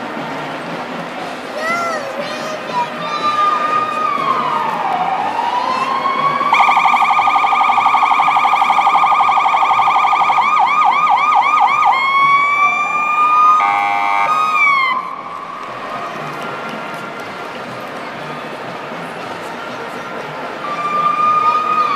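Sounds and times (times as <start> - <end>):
electronic police siren: 3.6 - 15.2, 20.6 - 21.9.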